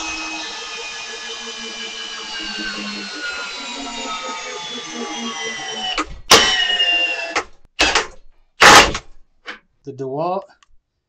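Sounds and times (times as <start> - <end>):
drill motor whine: 0.0 - 7.6
loud clunk: 7.4 - 9.2.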